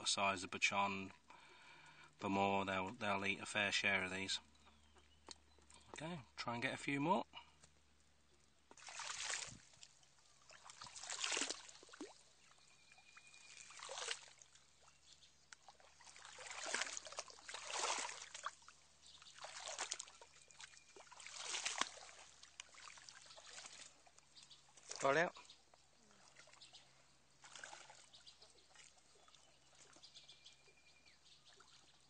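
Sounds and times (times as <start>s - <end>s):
shallow water sloshing and splashing: 8.5s - 32.0s.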